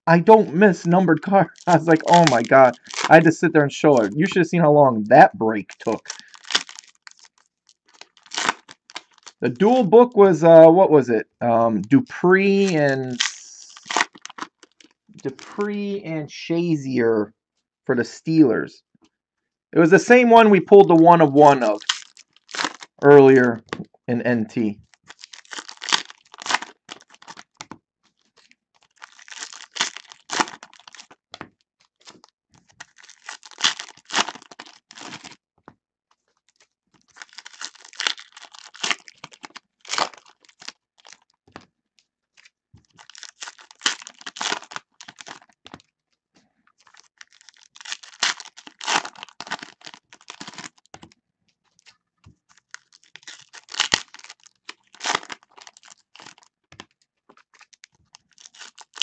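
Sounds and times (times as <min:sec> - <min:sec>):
foil wrappers tearing and crinkling: 0:00.2 - 0:04.4, 0:05.6 - 0:09.4, 0:12.6 - 0:15.5, 0:21.4 - 0:23.0, 0:24.9 - 0:27.6, 0:28.4 - 0:31.2, 0:31.8 - 0:35.4, 0:36.5 - 0:41.4, 0:42.9 - 0:45.9, 0:46.8 - 0:51.1, 0:51.8 - 0:59.0.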